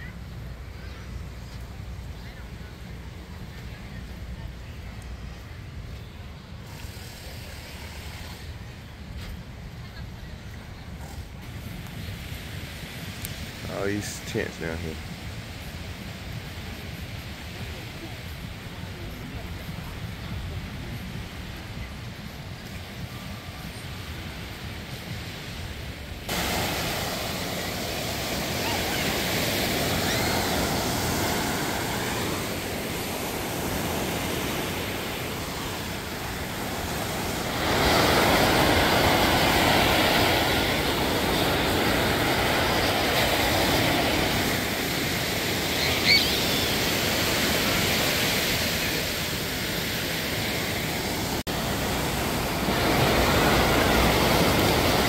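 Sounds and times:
ocean surf rushing: 11.4 - 55.0.

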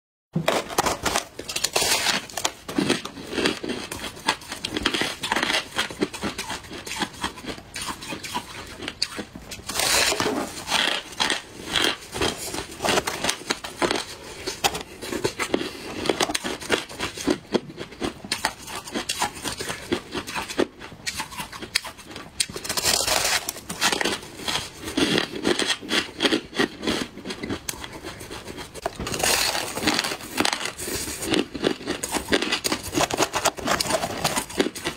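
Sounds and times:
ice crunching and crackling: 0.4 - 6.1, 28.8 - 34.9.

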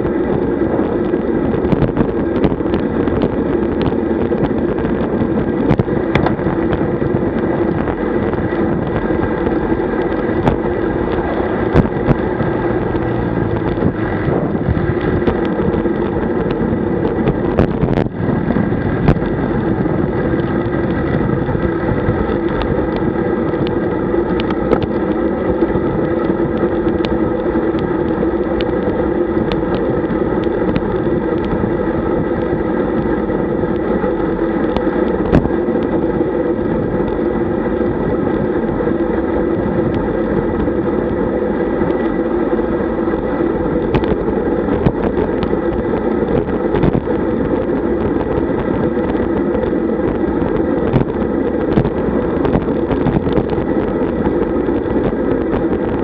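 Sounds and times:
wind rush: 0.0 - 56.0
tyre hum: 3.6 - 38.6.

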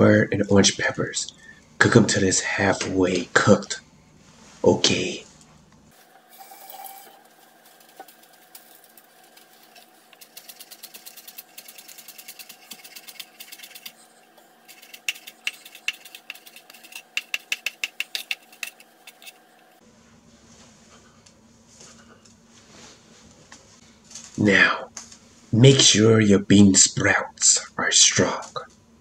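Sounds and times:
knife chopping on cutting board: 14.7 - 19.3.

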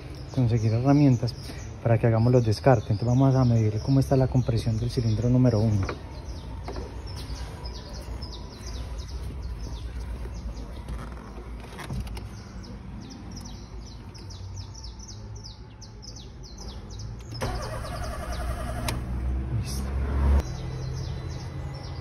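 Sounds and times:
birds chirping: 0.0 - 22.0
starter motor cranking engine: 17.3 - 19.1.

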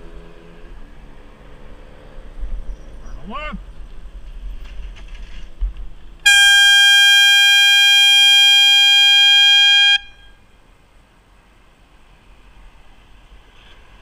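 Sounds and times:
horn warning blast: 6.3 - 10.4.

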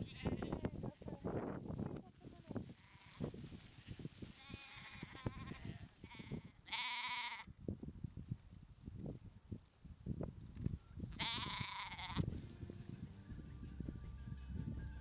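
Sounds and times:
lambs bleating: 0.0 - 0.7, 2.8 - 3.3, 4.4 - 7.5, 11.2 - 12.3.

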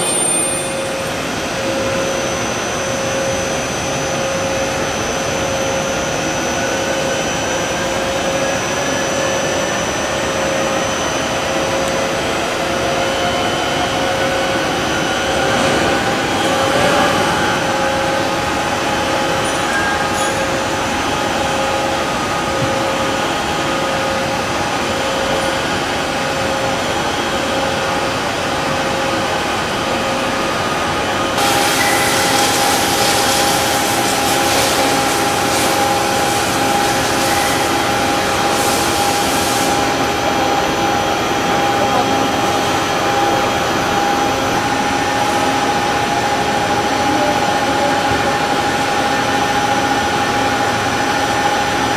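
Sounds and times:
lathe machine hum with whine: 0.0 - 51.9
hiss: 31.4 - 39.9.

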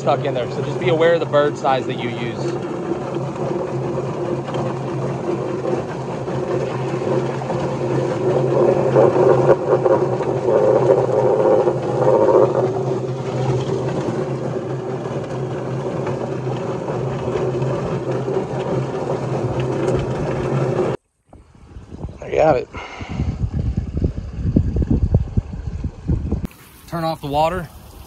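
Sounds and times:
chicken churning in plucker: 0.0 - 21.0
motor hum: 0.0 - 28.0
water spraying into tub: 26.5 - 28.0.

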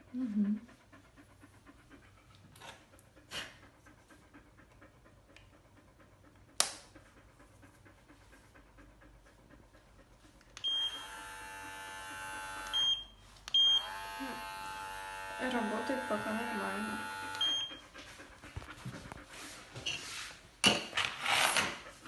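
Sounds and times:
hair clipper buzzing: 10.8 - 12.9, 13.5 - 17.7.

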